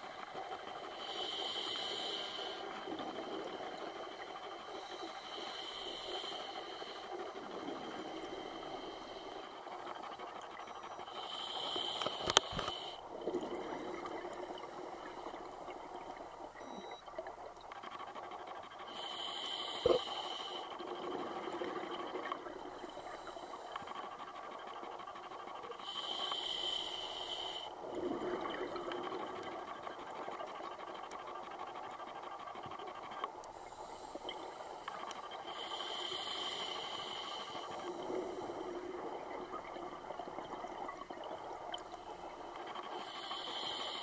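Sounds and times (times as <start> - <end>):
hissing regulator inhalations: 0.8 - 3.0, 4.7 - 9.7, 11.0 - 13.0, 18.8 - 20.8, 25.7 - 27.8, 33.5 - 38.8, 42.6 - 44.0
bubbling exhaled air: 19.8 - 20.2.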